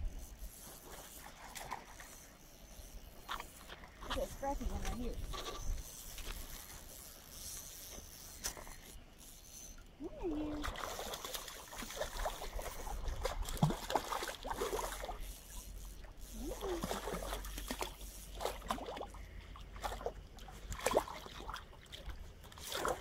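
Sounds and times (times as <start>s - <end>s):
fish splashing in water: 10.5s - 15.2s.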